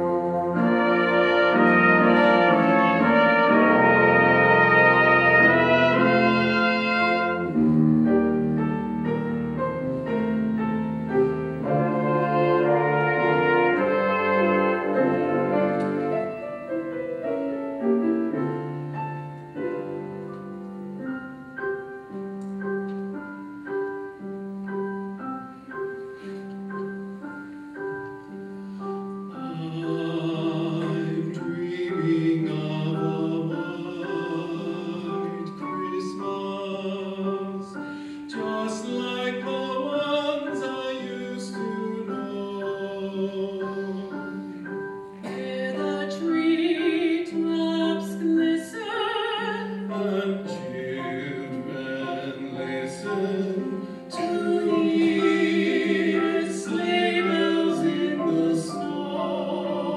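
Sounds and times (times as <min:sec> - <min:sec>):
brass ensemble chords: 0:00.0 - 0:34.2
singing with vibrato: 0:45.2 - 0:59.9.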